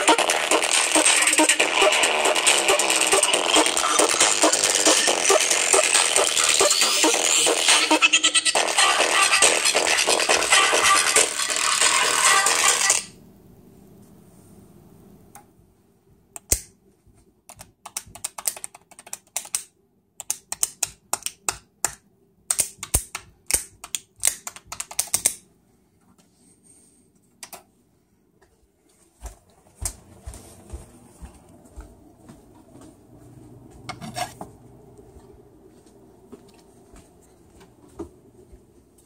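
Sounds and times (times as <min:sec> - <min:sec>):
rapid sharp clicks and pops: 0:17.5 - 0:25.4.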